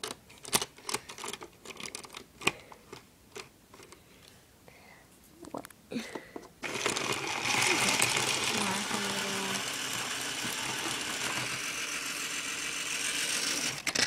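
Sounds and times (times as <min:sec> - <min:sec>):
plastic toy bricks clicking: 0:00.0 - 0:04.0.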